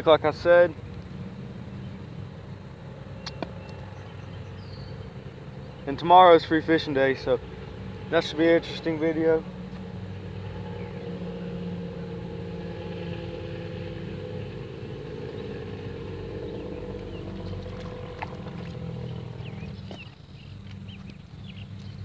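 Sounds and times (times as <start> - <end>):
engine humming: 0.0 - 22.0
bird chirps: 3.1 - 5.9, 15.2 - 22.0.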